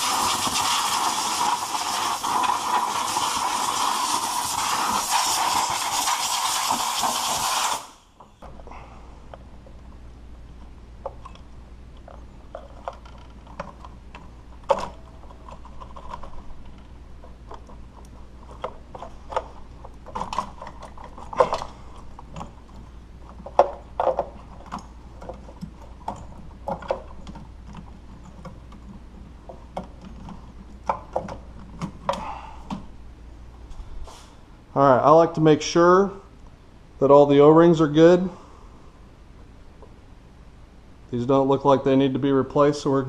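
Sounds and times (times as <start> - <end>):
low steady hum: 8.0 - 43.0
parts clicking and rattling: 10.6 - 32.9.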